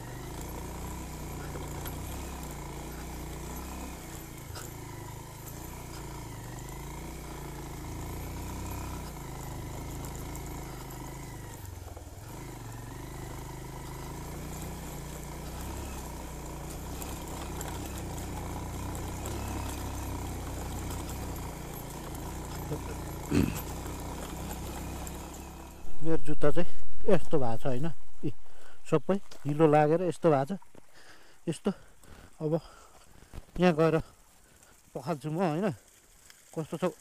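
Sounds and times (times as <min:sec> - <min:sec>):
motorcycle engine revving: 0:00.0 - 0:26.2.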